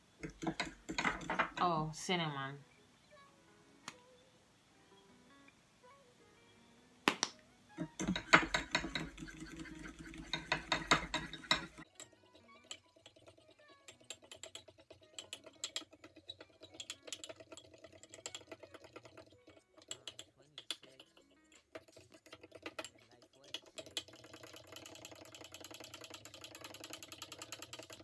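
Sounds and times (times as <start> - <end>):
utensils clinking against a bowl: 0.2 - 1.8, 7.8 - 28.0
soft background music: 0.5 - 21.8.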